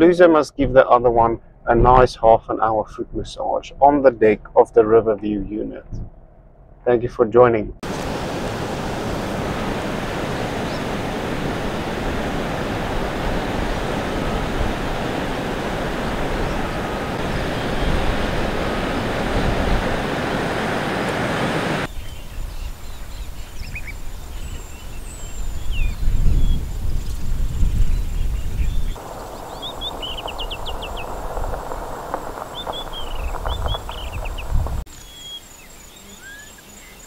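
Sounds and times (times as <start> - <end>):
wind rushing on microphone: 7.8 - 34.9
high bird chirps: 27.9 - 37.0
low rumble: 29.0 - 34.9.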